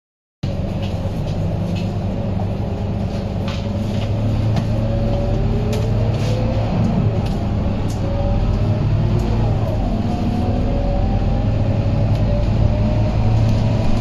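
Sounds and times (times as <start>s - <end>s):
interior rattles and clicks: 0.4s - 10.3s
bus diesel engine drone: 0.4s - 14.0s.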